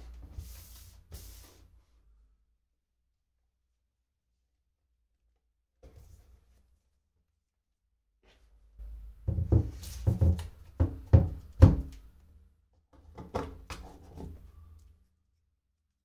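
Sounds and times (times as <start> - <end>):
dull knocks and thuds: 9.2 - 11.9.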